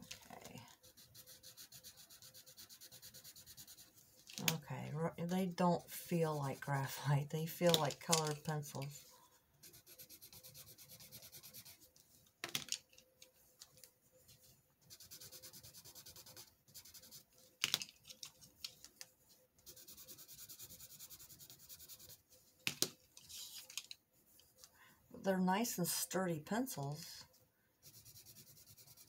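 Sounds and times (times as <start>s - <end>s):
pencil scribbling on paper: 0.5s - 4.0s, 9.6s - 11.9s, 14.8s - 17.3s, 19.6s - 22.2s, 27.8s - 29.0s.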